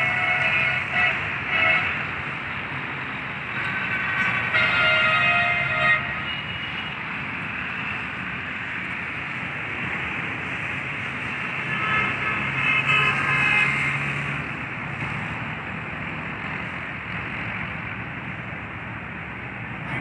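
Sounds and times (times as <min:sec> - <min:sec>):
traffic and engine noise: 0:00.0 - 0:20.0.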